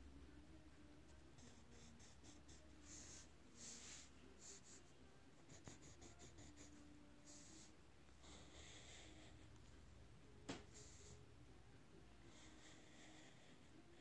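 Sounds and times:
pencil scratching on paper: 1.4s - 4.8s, 5.4s - 9.1s.

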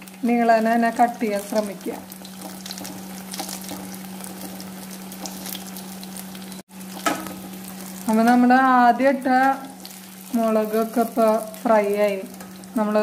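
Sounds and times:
food deep-frying in oil: 0.0s - 13.0s
spoon moving through oil: 1.4s - 8.3s, 9.4s - 12.8s.

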